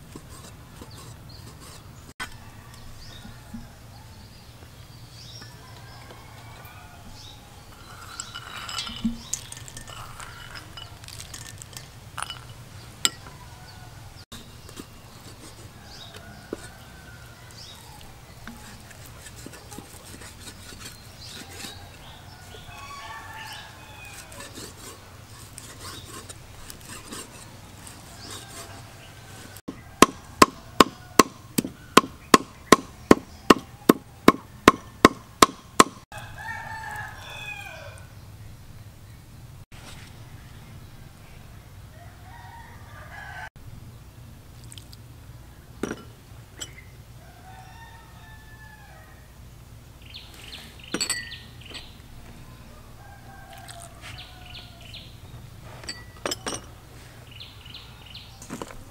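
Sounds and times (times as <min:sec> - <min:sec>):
rooster crowing: 0:02.2 - 0:04.4, 0:05.5 - 0:08.0, 0:21.4 - 0:24.6, 0:36.1 - 0:38.1, 0:41.9 - 0:43.5, 0:47.2 - 0:49.3, 0:52.4 - 0:55.1
cleaver chopping meat on wood: 0:29.7 - 0:36.0.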